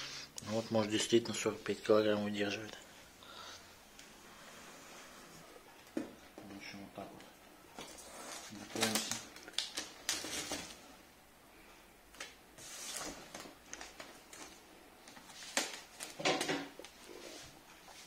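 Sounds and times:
packing tape pulled off roll: 8.4 - 10.8.

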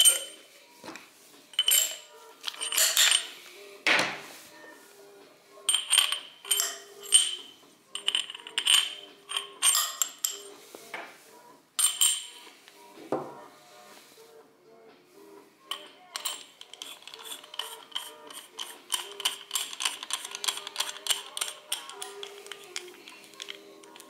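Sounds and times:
metal parts clicking and clinking: 0.0 - 0.4, 1.6 - 3.3, 5.7 - 10.5, 11.8 - 12.3, 15.7 - 24.0
quiet background music: 0.0 - 24.0.

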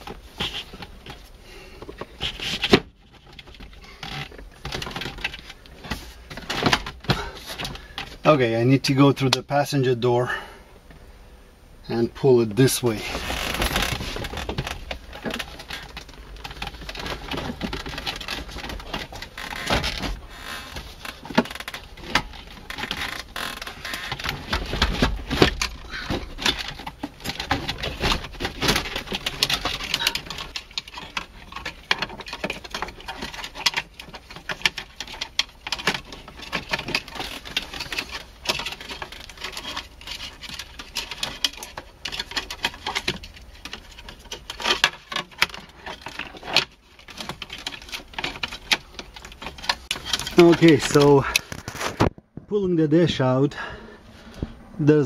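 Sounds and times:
plastic trim knocking and creaking: 13.0 - 52.5.

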